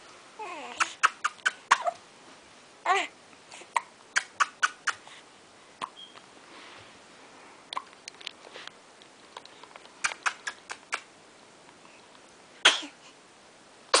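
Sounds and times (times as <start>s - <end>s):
person making mouth clicks: 10.0s - 11.1s.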